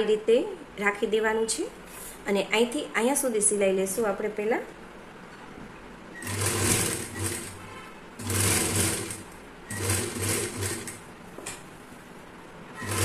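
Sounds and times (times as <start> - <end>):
sewing machine stitching: 6.2 - 11.0, 12.7 - 13.0.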